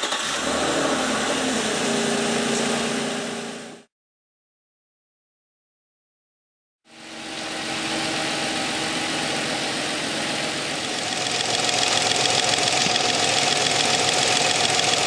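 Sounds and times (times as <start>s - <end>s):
car engine idling: 6.9s - 15.0s
fuel injector clicking: 11.2s - 15.0s.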